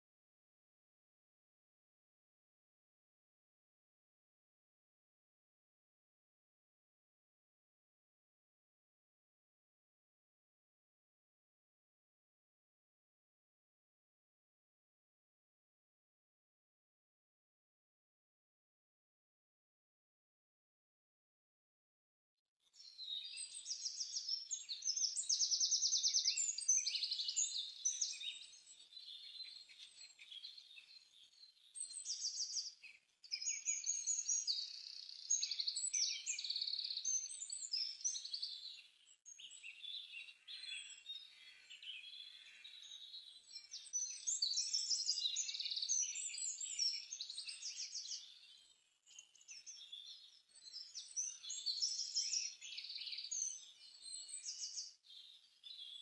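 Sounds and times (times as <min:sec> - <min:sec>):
small birds chirping and singing: 0:22.6 - 0:56.0.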